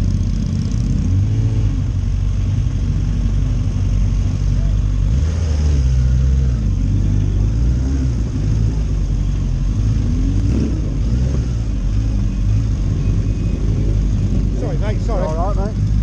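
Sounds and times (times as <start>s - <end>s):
motorcycle engine at low revs: 0.0s - 16.0s
other motorcycles running: 0.0s - 16.0s.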